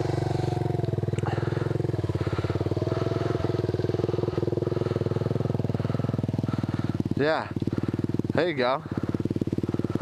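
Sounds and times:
motorcycle engine idling: 0:00.0 - 0:10.0.

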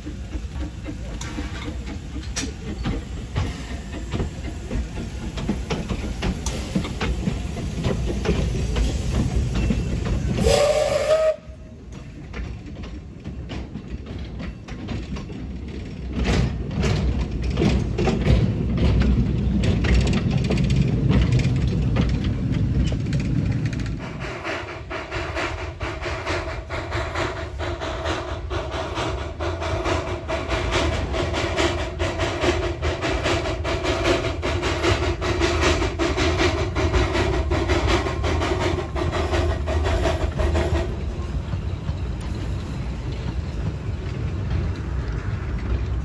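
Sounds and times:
steam locomotive rumbling: 0:00.0 - 0:46.0
steam whistle blast: 0:10.4 - 0:11.6.

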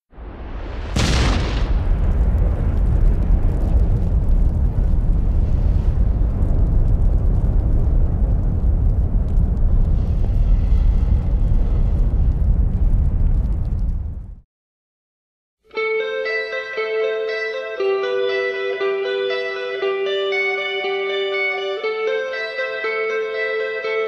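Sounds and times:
deep rumbling rush: 0:00.1 - 0:14.4.

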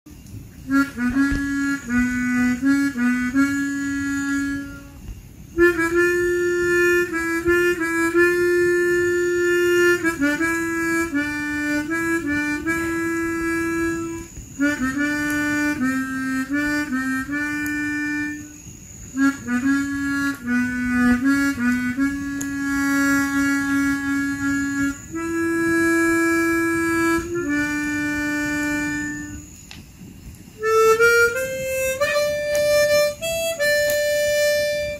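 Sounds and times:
harmonica melody: 0:00.7 - 0:29.6, 0:30.6 - 0:34.9.

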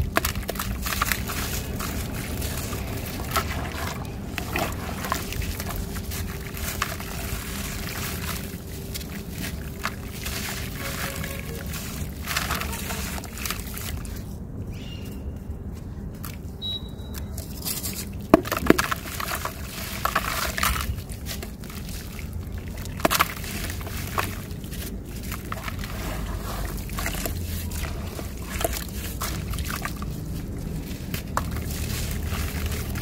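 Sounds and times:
earth crackling and splatting: 0:00.0 - 0:14.3, 0:17.9 - 0:33.0
water sloshing and dribbling: 0:00.0 - 0:14.6, 0:16.2 - 0:33.0.

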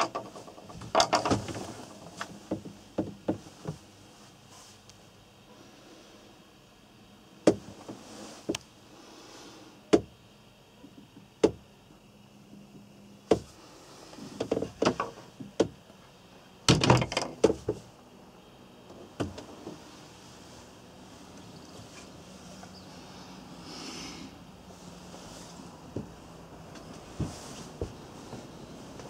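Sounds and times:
wooden doors knocking and latches clicking: 0:00.0 - 0:03.5, 0:11.0 - 0:11.7, 0:16.7 - 0:17.8.

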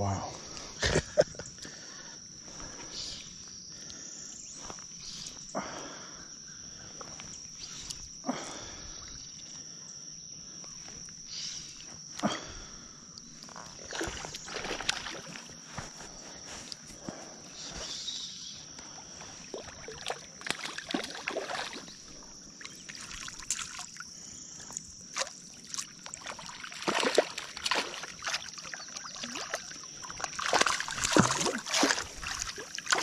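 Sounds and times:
high-pitched insect drone: 0:00.0 - 0:33.0
water splashes: 0:13.8 - 0:15.5, 0:19.5 - 0:33.0.

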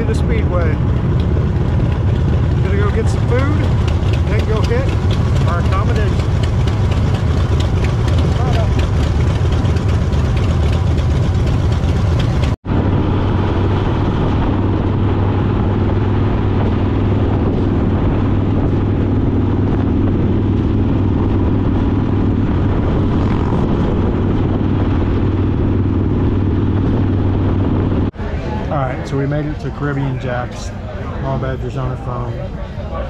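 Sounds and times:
motorcycle engine running: 0:00.0 - 0:28.2
road noise: 0:00.0 - 0:33.0.

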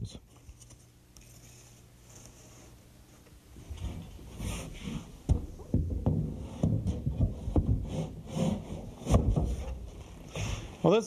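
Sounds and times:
wood rubbing: 0:03.6 - 0:10.8
wooden knocks: 0:05.2 - 0:08.1.

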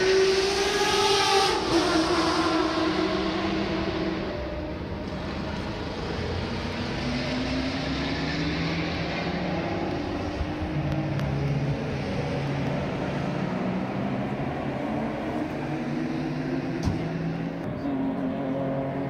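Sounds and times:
racing car engines revving: 0:00.0 - 0:19.0.

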